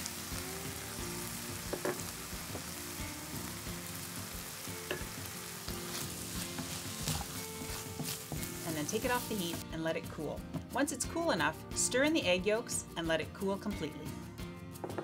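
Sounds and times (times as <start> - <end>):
meat sizzling in a pan: 0.0 - 9.6
wooden spoon knocking on pan: 1.7 - 2.7, 4.8 - 5.2, 6.4 - 8.6.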